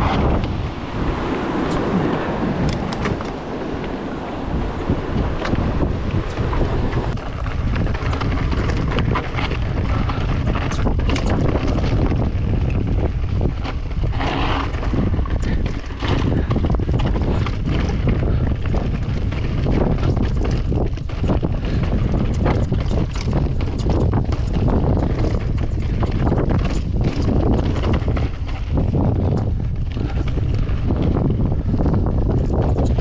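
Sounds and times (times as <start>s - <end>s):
wind buffeting microphone: 0.0s - 33.0s
bike clattering over rocky trail: 5.4s - 33.0s.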